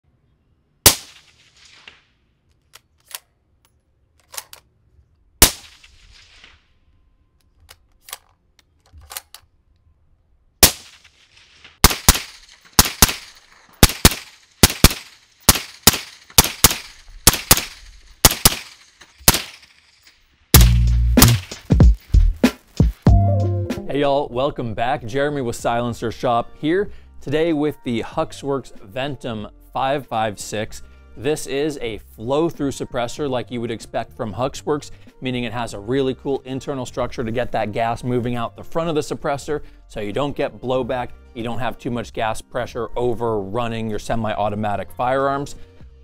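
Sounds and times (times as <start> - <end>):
suppressed rifle shots: 0.8 - 2.1, 5.4 - 6.6, 10.6 - 19.8.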